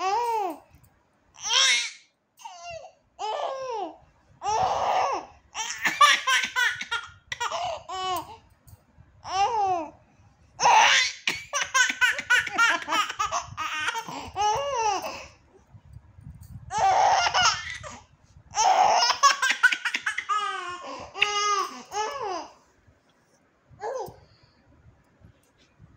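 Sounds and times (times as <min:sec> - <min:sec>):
baby giggling: 0:10.6 - 0:15.3, 0:18.6 - 0:22.5.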